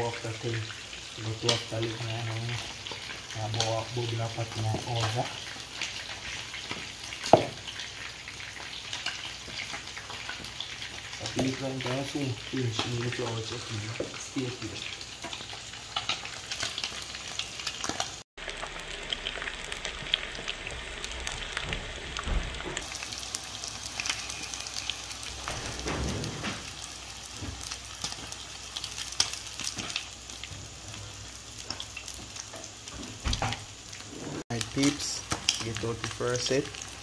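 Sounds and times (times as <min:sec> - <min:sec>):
fish sizzling in hot oil: 0:00.0 - 0:37.0.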